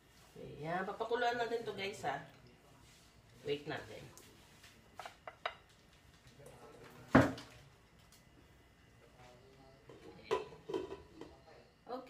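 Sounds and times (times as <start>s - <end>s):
metal pot clanking: 10.2s - 11.3s.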